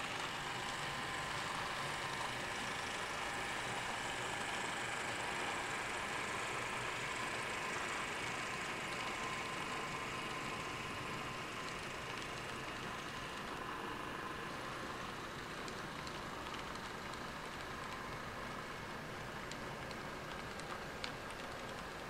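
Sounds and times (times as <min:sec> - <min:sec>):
model train mechanical hum: 0:00.0 - 0:22.0
faint clicks: 0:15.0 - 0:22.0.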